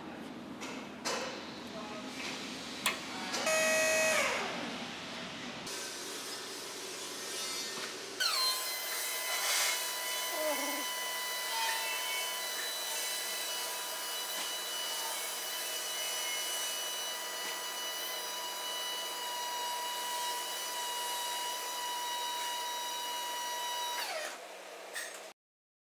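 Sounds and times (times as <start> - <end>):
electric pump motor whine: 3.4 - 4.8, 6.9 - 24.9.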